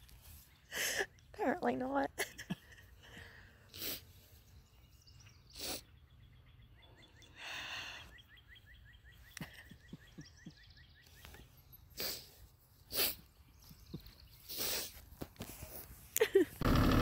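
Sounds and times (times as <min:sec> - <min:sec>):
breathy exhales or sniffs: 0:12.0 - 0:13.3, 0:14.5 - 0:15.0.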